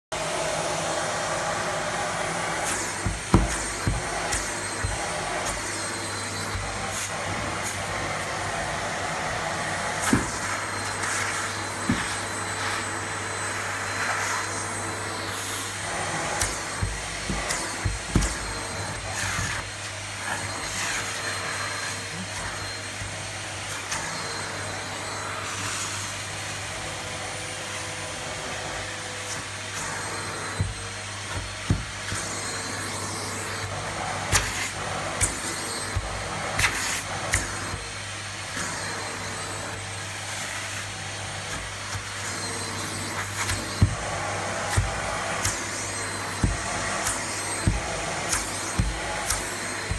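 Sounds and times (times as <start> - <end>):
vacuum cleaner running: 0.0 - 49.9.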